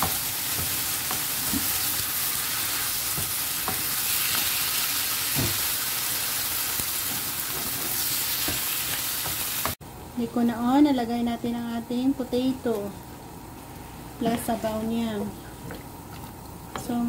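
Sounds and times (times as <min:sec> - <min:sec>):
food sizzling in a wok: 0:00.0 - 0:09.8.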